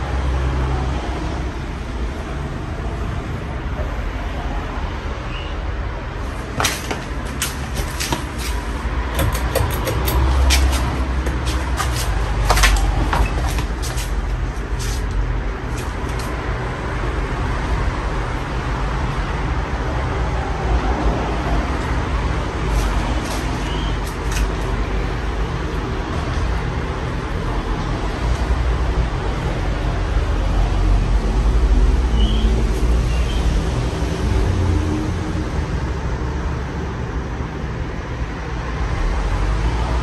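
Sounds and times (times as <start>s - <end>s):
ceiling fan clicks: 9.0s - 13.6s.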